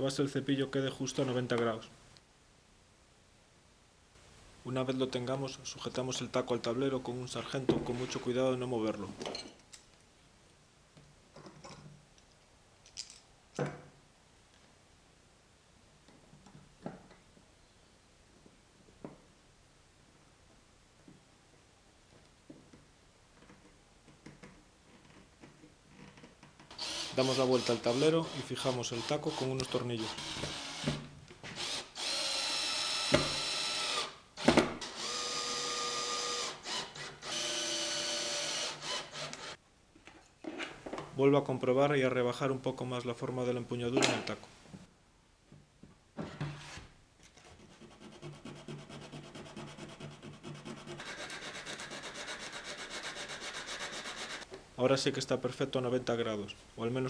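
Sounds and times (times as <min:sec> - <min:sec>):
drill motor whine: 0:26.8 - 0:28.4, 0:34.8 - 0:39.6.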